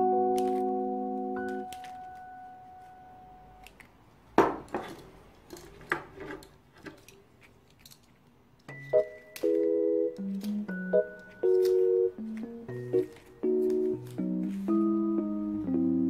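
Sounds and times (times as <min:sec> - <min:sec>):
pruning shears snipping: 0:10.2 - 0:14.3
plant cuttings rustling: 0:10.2 - 0:14.9.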